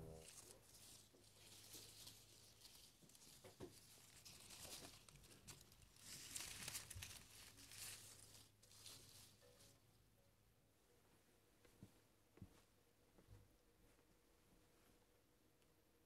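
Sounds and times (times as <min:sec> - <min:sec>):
dry leaves rustling and crinkling: 0:00.0 - 0:09.8.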